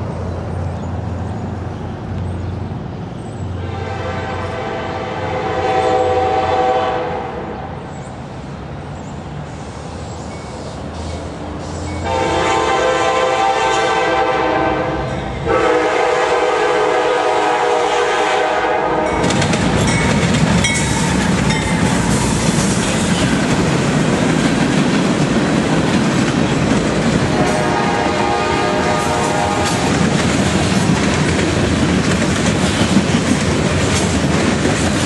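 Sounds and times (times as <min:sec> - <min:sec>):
locomotive engines rumbling: 0:00.0 - 0:35.0
locomotive air horn blasts: 0:03.6 - 0:07.6, 0:12.0 - 0:19.3, 0:27.3 - 0:30.0
train wheels clattering: 0:19.1 - 0:35.0.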